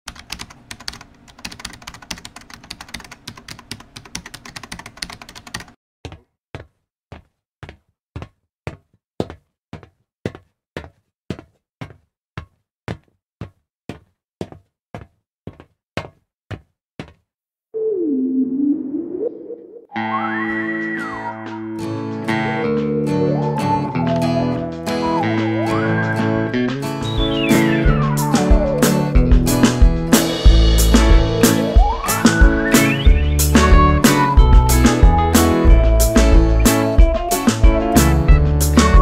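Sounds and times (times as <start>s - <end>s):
music: 19.9s - 39.0s.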